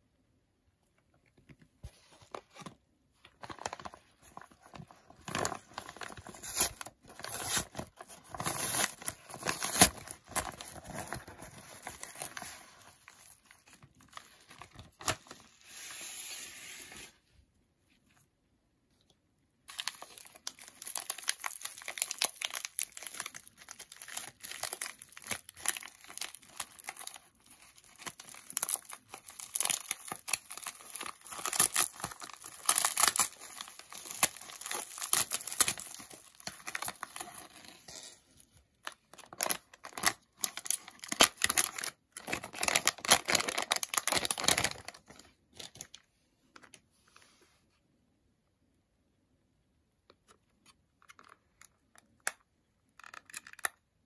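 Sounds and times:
bubble wrap crinkling and tearing: 3.2s - 17.1s, 19.7s - 38.2s, 38.8s - 46.0s.

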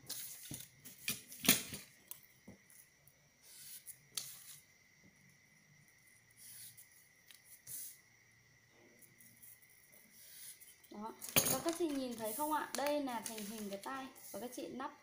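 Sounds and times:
paper rustling and ruler scraping: 0.0s - 1.4s, 11.8s - 14.4s
faint high whine: 0.0s - 15.0s.

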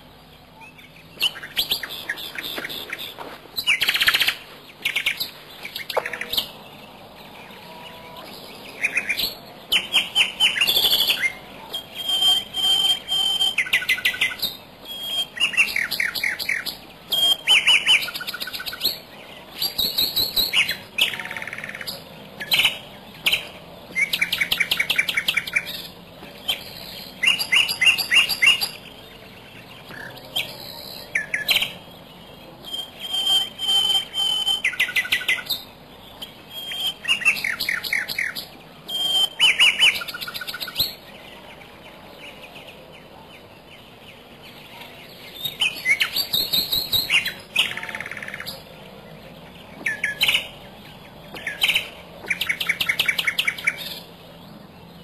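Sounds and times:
bird whistle: 0.6s - 6.6s, 8.8s - 28.9s, 32.6s - 41.0s, 45.3s - 48.6s
bird chattering trills: 7.5s - 31.9s.

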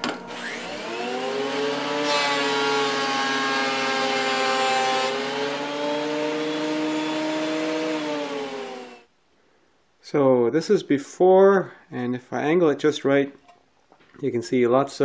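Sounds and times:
planer motor whine: 0.0s - 9.0s.

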